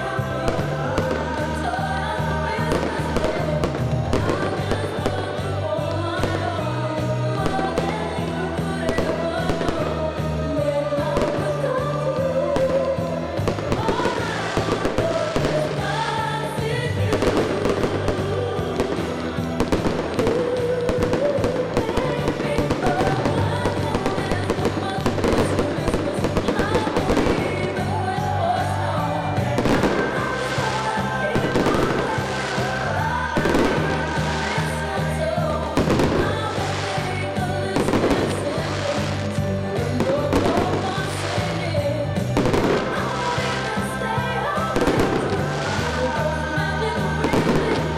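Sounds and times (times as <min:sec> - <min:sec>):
fireworks popping and banging: 0:00.0 - 0:47.9
music with singing voice: 0:00.0 - 0:47.9.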